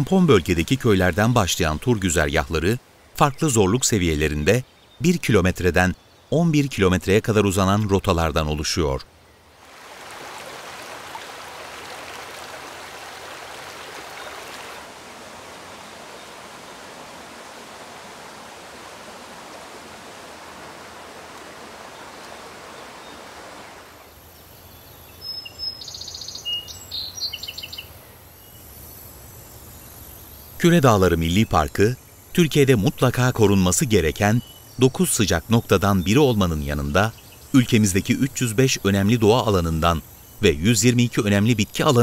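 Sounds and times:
stream rushing over rocks: 9.6 - 24.0
bird chirps: 24.6 - 28.6.

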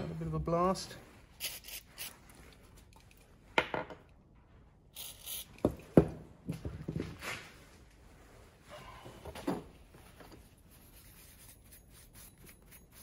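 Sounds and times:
aerosol spray hissing: 1.4 - 2.1, 5.0 - 5.7.

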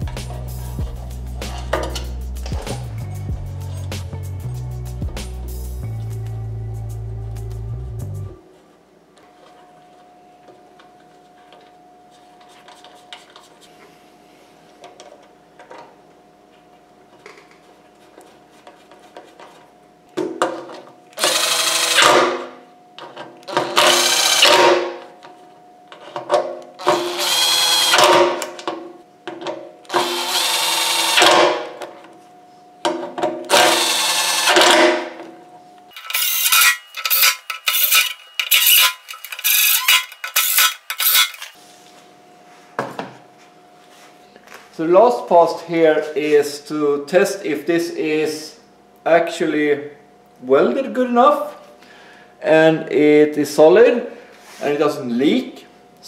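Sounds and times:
impact driver running: 21.2 - 22.5, 23.6 - 25.0, 26.8 - 28.5, 29.9 - 31.7, 33.5 - 35.2, 36.0 - 41.6.

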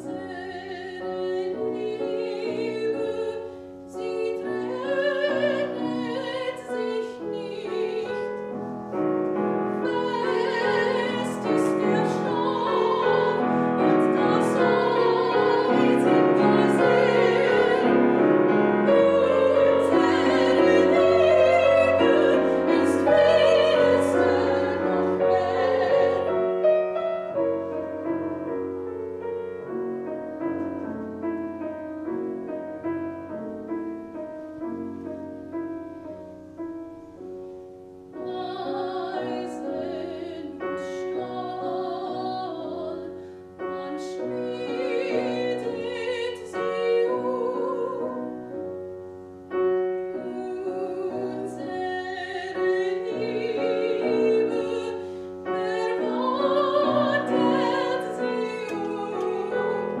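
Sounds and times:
woman singing operatically: 0.0 - 8.5, 9.7 - 26.6, 38.2 - 48.3, 50.2 - 60.0
grand piano playing: 0.0 - 60.0.

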